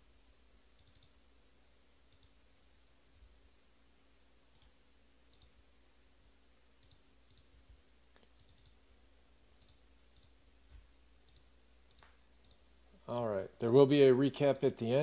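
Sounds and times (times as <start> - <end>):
faint clicks: 2.1 - 2.4, 11.2 - 12.6.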